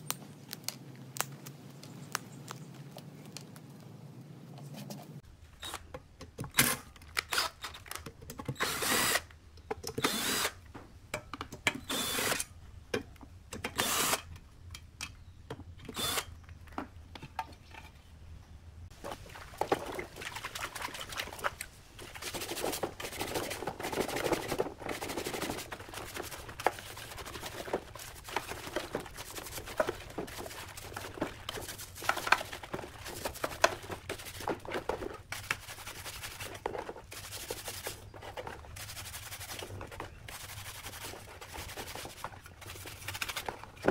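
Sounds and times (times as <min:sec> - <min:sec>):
cordless drill spinning: 0:07.2 - 0:07.8, 0:08.6 - 0:09.3, 0:10.0 - 0:10.6, 0:11.8 - 0:12.4, 0:13.8 - 0:14.2, 0:15.9 - 0:16.3
water sloshing in a basin: 0:19.0 - 0:38.6
stiff brush scrubbing: 0:19.0 - 0:43.9.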